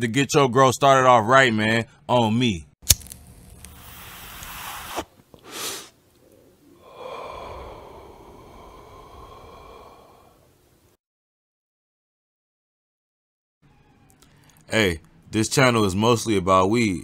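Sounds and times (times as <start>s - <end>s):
breathy whoosh: 6.7s - 10.6s.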